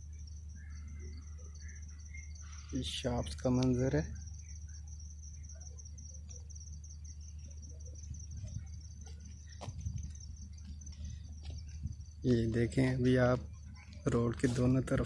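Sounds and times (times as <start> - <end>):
crickets chirring: 0.0 - 15.0
vehicle rumble on road: 7.1 - 15.0.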